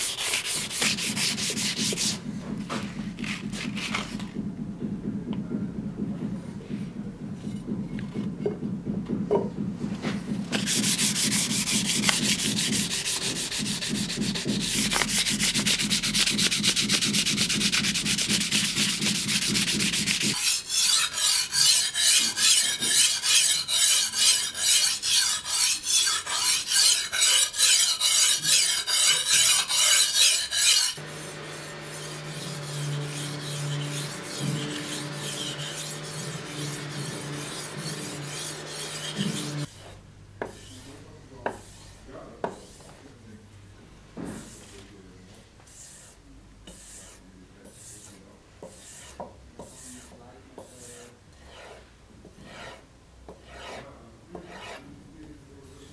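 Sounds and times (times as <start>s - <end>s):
knife blade scraping on abrasive: 19.9s - 39.9s.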